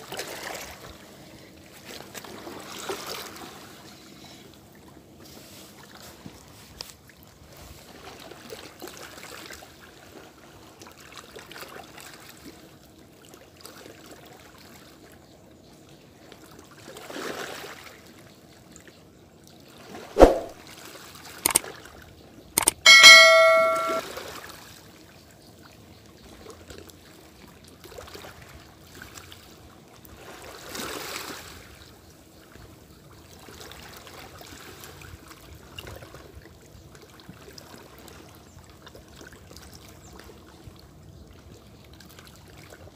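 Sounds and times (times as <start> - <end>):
metallic bell-like ring: 22.6 - 24.0.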